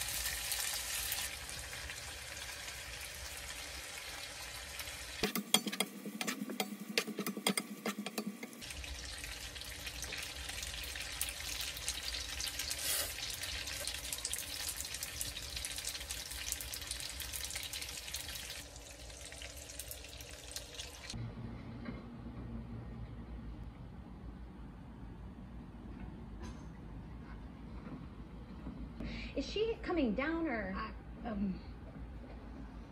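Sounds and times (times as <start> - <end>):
food sizzling in a frying pan: 0.0 - 21.2.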